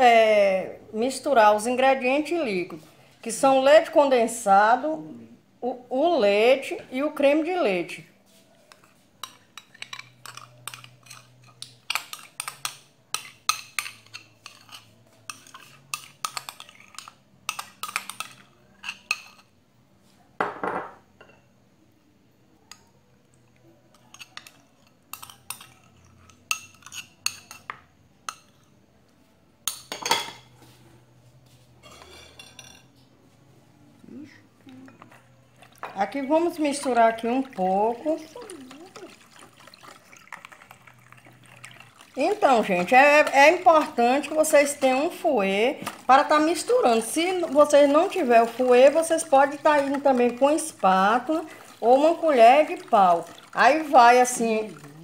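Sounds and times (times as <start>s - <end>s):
spoon scraping a bowl: 8.2s - 19.6s, 23.9s - 28.8s, 29.7s - 33.0s, 34.8s - 55.0s
spoon clattering: 9.2s - 19.4s, 23.9s - 28.7s, 35.8s - 54.9s.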